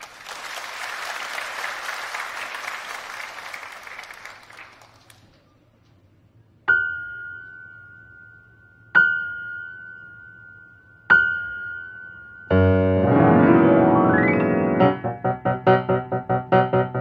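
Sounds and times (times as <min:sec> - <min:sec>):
piano high note ringing: 0:12.5 - 0:17.0
piano low chord with upward run: 0:12.5 - 0:17.0.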